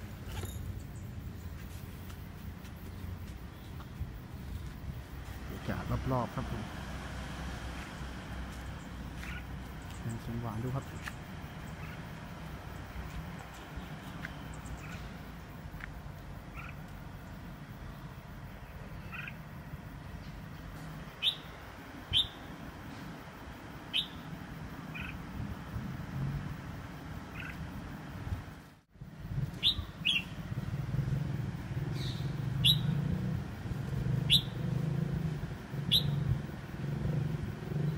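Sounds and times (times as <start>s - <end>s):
steady low hum: 0.0s - 37.9s
small bird chirping: 7.9s - 19.5s, 20.1s - 23.1s, 23.9s - 24.3s, 24.9s - 25.3s, 27.2s - 27.7s, 29.6s - 30.6s, 31.8s - 33.2s, 34.1s - 34.7s, 35.8s - 36.4s.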